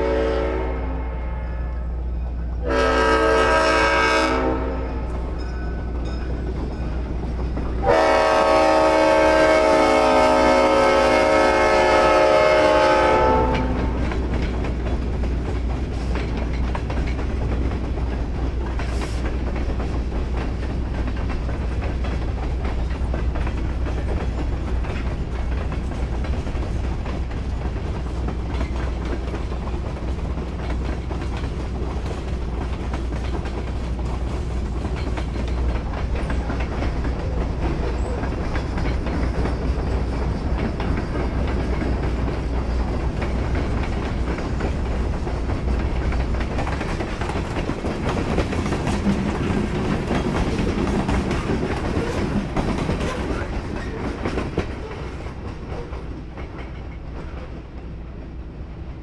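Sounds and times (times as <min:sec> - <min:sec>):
train wheels rumbling: 0:00.0 - 0:59.0
wheels clicking over rail joints: 0:13.3 - 0:57.9.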